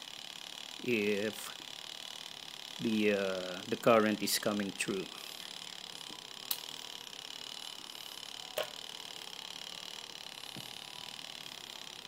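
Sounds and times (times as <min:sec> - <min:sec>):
test clip clicking on wire: 0:06.4 - 0:06.7.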